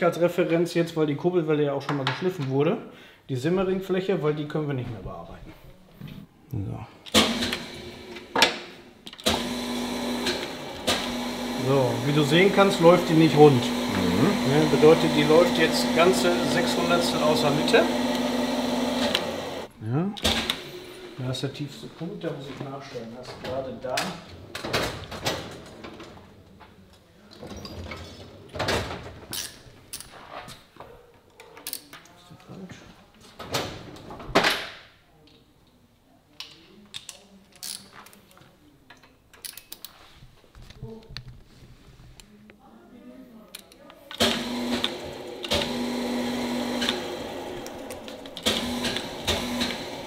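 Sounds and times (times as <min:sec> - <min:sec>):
machine drive humming: 0:09.2 - 0:19.7, 0:44.2 - 0:50.0.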